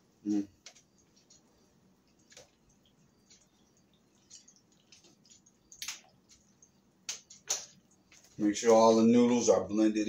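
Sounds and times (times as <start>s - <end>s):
spoon stirring wet food: 0.6s - 8.4s.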